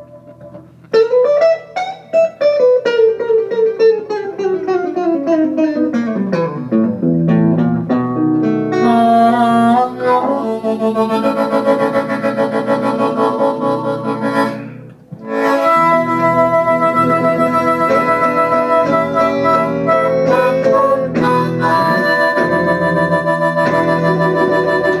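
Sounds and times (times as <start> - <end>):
picked guitar descending line: 0.0 - 25.0
harmonica held chords: 8.0 - 25.0.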